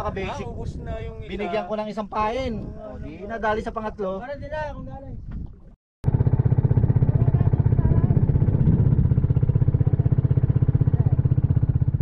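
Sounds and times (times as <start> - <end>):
boat inboard engine running: 6.0 - 12.0.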